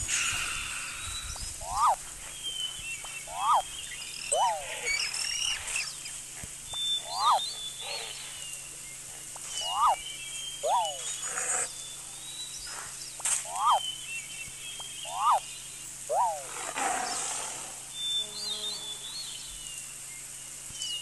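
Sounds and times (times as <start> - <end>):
bird calls sweeping up and down: 0.0 - 20.0
high thin bird chirps: 0.0 - 20.0
steady outdoor hiss: 0.0 - 21.0.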